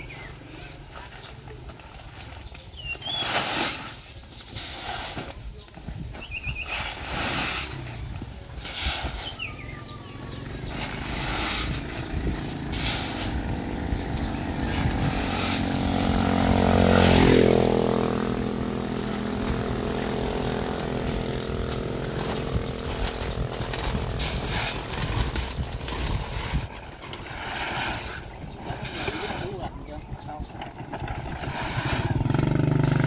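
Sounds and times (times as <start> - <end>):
small engine passing by: 6.6 - 33.0.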